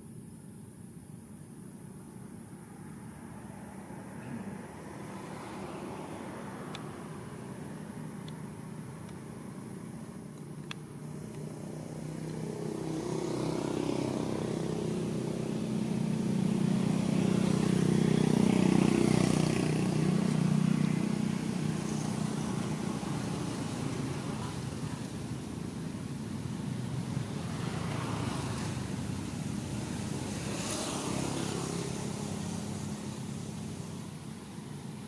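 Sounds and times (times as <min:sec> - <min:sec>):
vehicle engine passing by: 0:11.0 - 0:25.2, 0:26.9 - 0:34.1.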